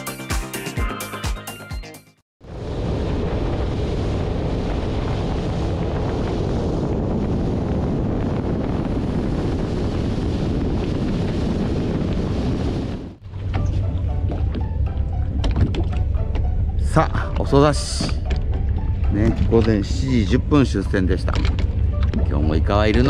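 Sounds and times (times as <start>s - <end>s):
wind buffeting microphone: 2.4s - 16.9s
boat engine: 8.9s - 23.0s
water rushing: 10.4s - 23.0s.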